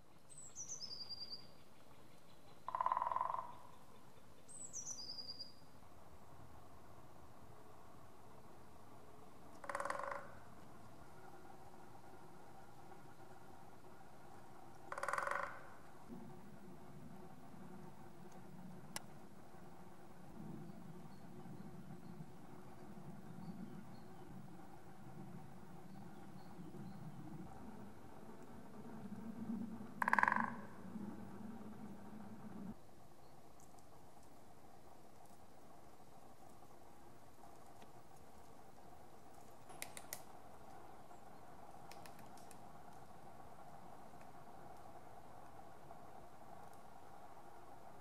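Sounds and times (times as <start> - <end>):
songbird singing trill: 0.0 - 5.8, 25.8 - 27.3
faint low background rumble: 0.0 - 48.0
woodpecker drumming: 1.8 - 3.8, 9.4 - 16.2, 25.8 - 32.2.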